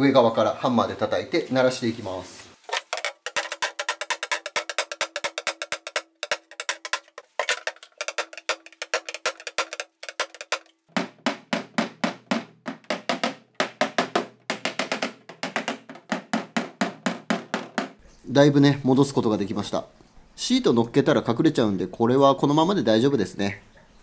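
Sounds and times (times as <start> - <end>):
hammer striking hammer: 8.2 - 18.0.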